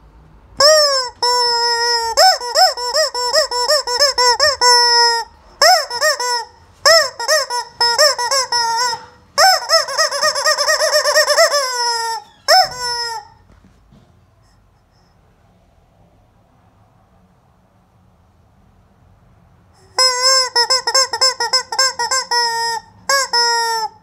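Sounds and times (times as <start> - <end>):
rubber chicken toy squawking: 0.6 - 13.4, 19.8 - 24.0.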